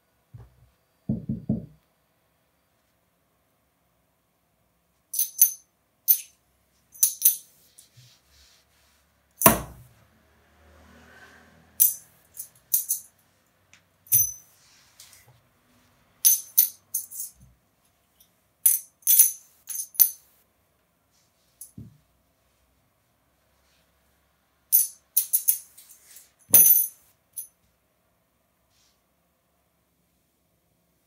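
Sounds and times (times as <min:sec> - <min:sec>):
coins clinking: 0:05.2 - 0:06.3, 0:07.0 - 0:07.5, 0:11.8 - 0:13.2, 0:14.1 - 0:14.5, 0:16.2 - 0:17.4, 0:18.7 - 0:20.3, 0:24.7 - 0:27.5.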